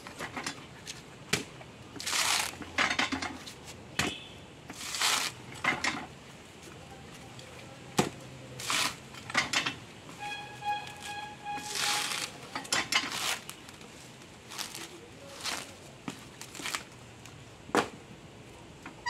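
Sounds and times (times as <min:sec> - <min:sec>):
coconut husk tearing: 0:02.0 - 0:02.8, 0:04.7 - 0:05.6, 0:08.0 - 0:09.2, 0:10.8 - 0:17.4.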